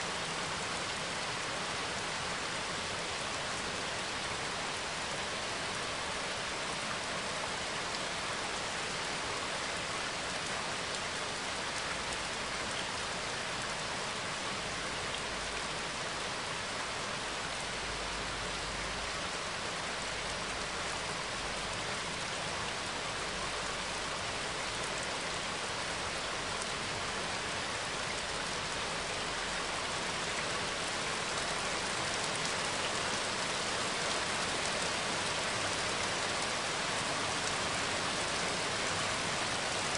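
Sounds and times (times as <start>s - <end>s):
steady rain falling: 0.0s - 39.9s.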